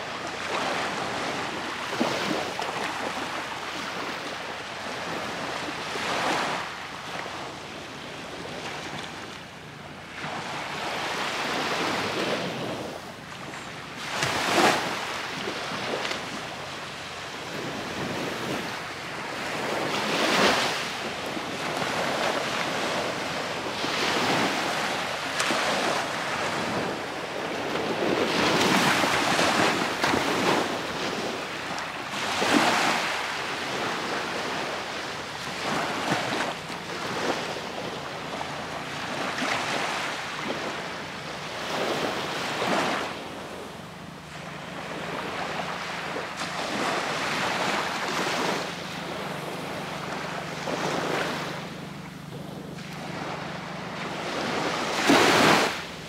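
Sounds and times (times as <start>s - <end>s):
small waves washing onto beach: 0.0s - 56.0s
wind on microphone: 10.2s - 44.0s.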